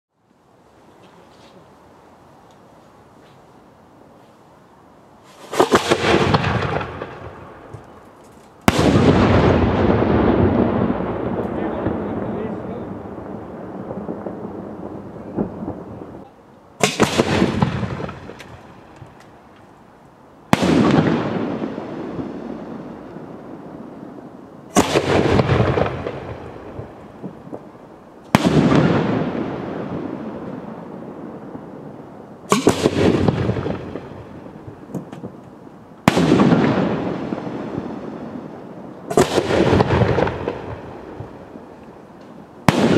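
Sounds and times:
firework cracks with rushing hiss: 0:05.2 - 0:07.8, 0:08.6 - 0:16.2, 0:16.8 - 0:19.3, 0:20.5 - 0:31.7, 0:32.5 - 0:42.9
sharp firework bang: 0:05.3 - 0:07.4, 0:08.7 - 0:13.3, 0:16.8 - 0:18.7, 0:20.5 - 0:22.4, 0:32.5 - 0:34.4, 0:36.0 - 0:37.0, 0:42.7 - 0:42.9
firework shells bursting: 0:05.3 - 0:09.5, 0:16.8 - 0:19.8, 0:32.5 - 0:37.9
rumbling echo: 0:08.7 - 0:19.0
small firework pops: 0:16.8 - 0:19.8, 0:32.5 - 0:36.8.

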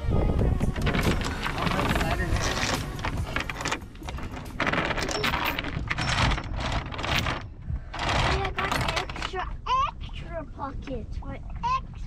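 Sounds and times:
wind rumbling on microphone: 0:00.0 - 0:12.0
anchor chain clinking: 0:00.7 - 0:09.4.

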